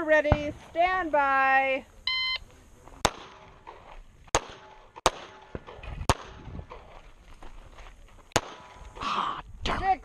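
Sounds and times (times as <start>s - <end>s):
shot timer beep: 2.1s - 2.4s
pistol shots: 3.0s - 6.8s, 8.3s - 8.8s.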